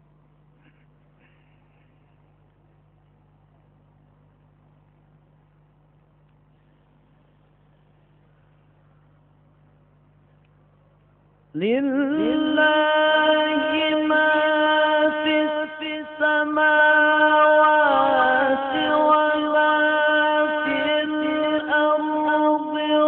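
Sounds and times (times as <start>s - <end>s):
man reciting melodically: 11.6s - 23.0s.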